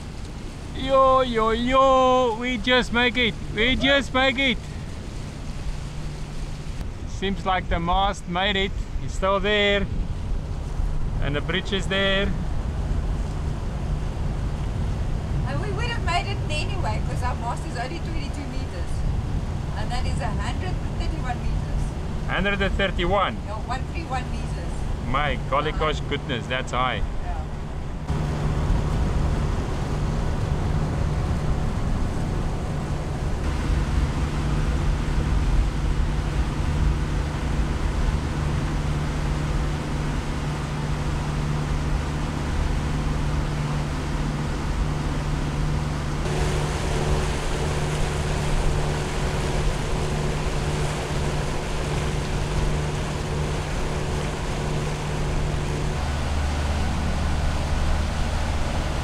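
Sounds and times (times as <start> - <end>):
boat diesel engines humming: 0.0 - 59.0
water rushing past hull: 0.0 - 59.0
wind: 0.0 - 59.0.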